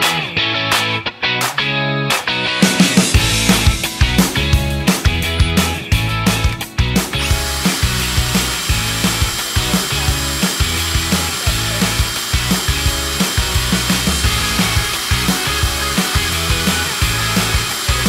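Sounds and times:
background music with beat: 0:00.0 - 0:18.0
cordless drill running: 0:07.2 - 0:18.0.

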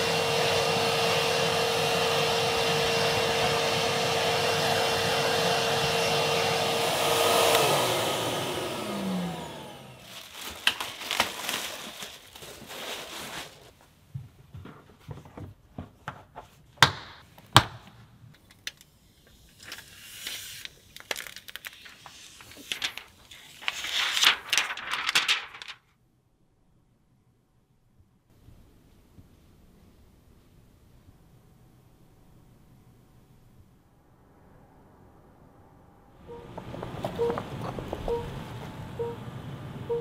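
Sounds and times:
vacuum cleaner running: 0:00.0 - 0:11.6, 0:36.3 - 0:40.0
rubber floor mat rustling: 0:10.0 - 0:16.8.

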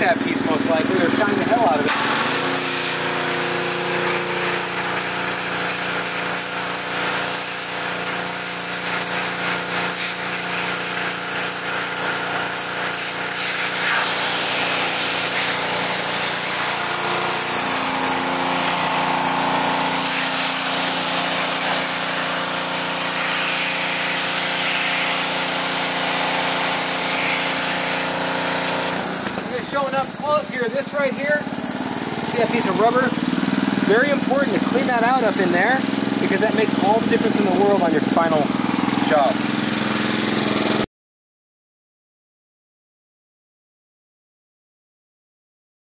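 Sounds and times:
pressure washer engine running: 0:00.0 - 0:40.9
water spray hissing on glass: 0:01.9 - 0:28.9.

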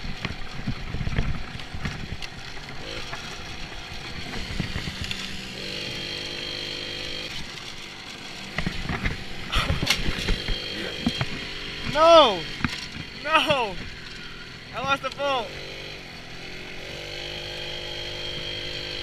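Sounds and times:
moped engine running: 0:00.0 - 0:19.0
knocks from bumpy ride: 0:08.5 - 0:14.0.

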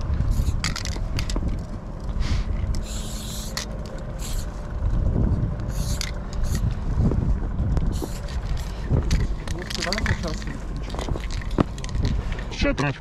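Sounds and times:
steady low rumble: 0:00.0 - 0:13.0
spray paint can hissing: 0:00.2 - 0:01.3, 0:02.2 - 0:04.6, 0:05.7 - 0:06.7, 0:07.9 - 0:08.7.

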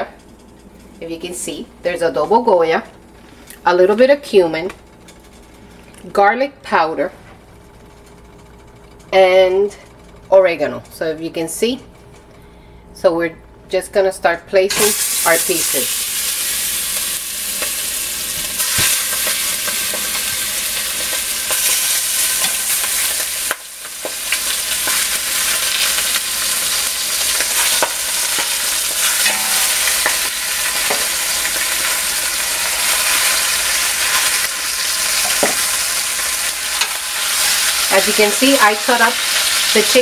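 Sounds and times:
chicken sizzling in oil: 0:14.8 - 0:40.0.

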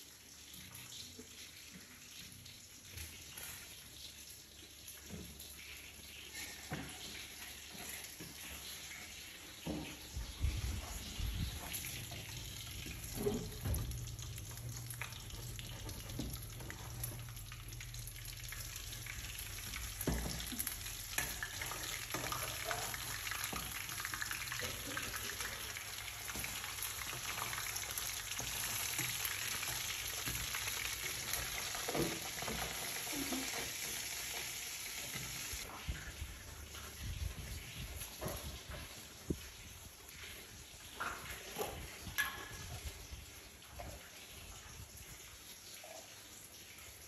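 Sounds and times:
fish sizzling in oil: 0:11.5 - 0:35.7.

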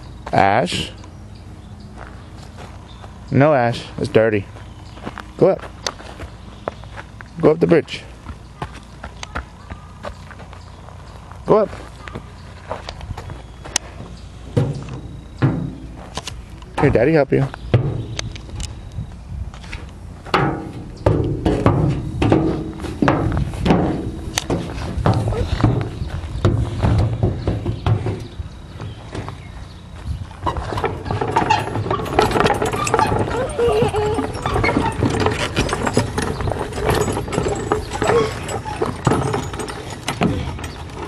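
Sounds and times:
child's footsteps on wooden planks: 0:04.0 - 0:07.4, 0:08.2 - 0:18.6, 0:21.1 - 0:41.0
knocks on metal playground deck: 0:14.5 - 0:16.0, 0:17.7 - 0:18.4, 0:20.3 - 0:29.4
metal chains clinking: 0:30.6 - 0:41.0.

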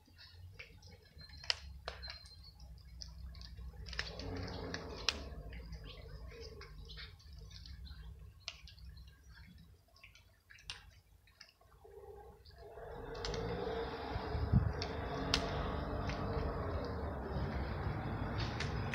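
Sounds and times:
cat crunching dry kibble: 0:00.5 - 0:11.8, 0:12.5 - 0:18.9
steady rumbling with low hum: 0:11.9 - 0:18.9.

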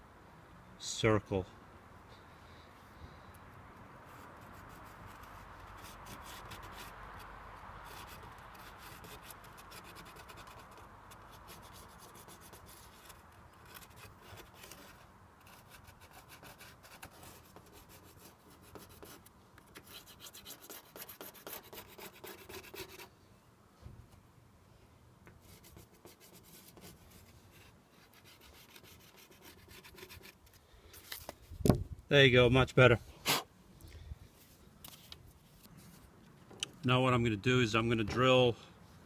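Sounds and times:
pencil scratching on metal: 0:04.1 - 0:23.1, 0:25.4 - 0:30.5.

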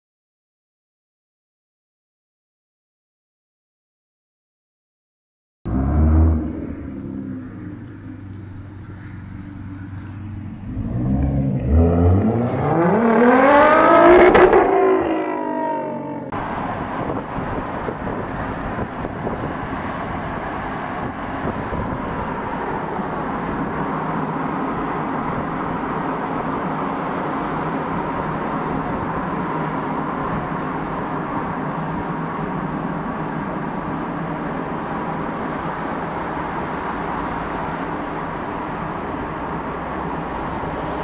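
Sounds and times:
sports car engine revving: 0:05.7 - 0:16.4
rushing vehicle noise: 0:05.7 - 0:41.0.

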